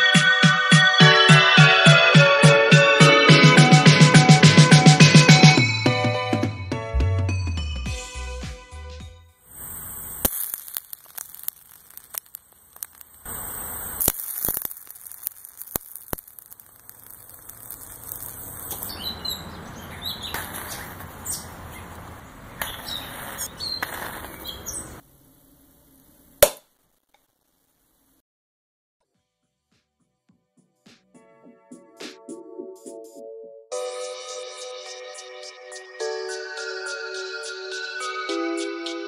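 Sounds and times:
chemical reaction cracks and pops: 0:09.6 - 0:19.2, 0:20.2 - 0:21.1, 0:22.6 - 0:24.5, 0:26.0 - 0:27.5
birds chirping: 0:17.5 - 0:25.0.

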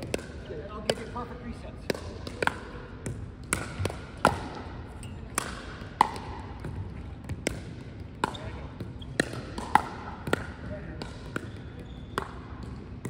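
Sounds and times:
paddles striking ball: 0:00.0 - 0:13.0
ball bouncing on wooden floor: 0:05.3 - 0:13.0.

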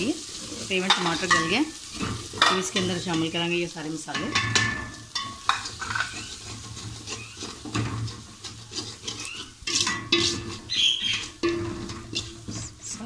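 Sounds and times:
spoon scraping metal pot: 0:04.1 - 0:13.0.

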